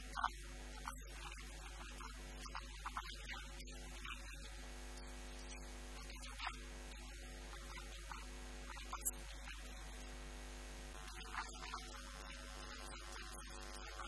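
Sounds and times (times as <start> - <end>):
electrical mains hum: 0.0 - 14.0.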